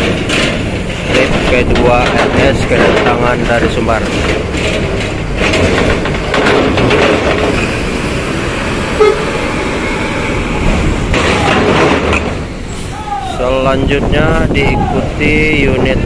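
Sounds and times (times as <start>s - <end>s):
bus engine running: 0.0s - 16.0s
bus horn held steady: 9.0s - 9.4s.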